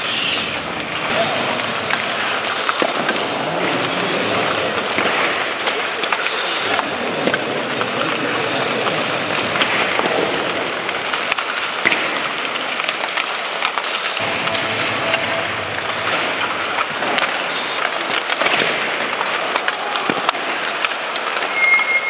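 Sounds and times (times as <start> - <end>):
steady arena hiss: 0.0 - 16.7
pucks cracking off sticks: 0.0 - 22.0
skate blades scraping ice: 0.0 - 22.0.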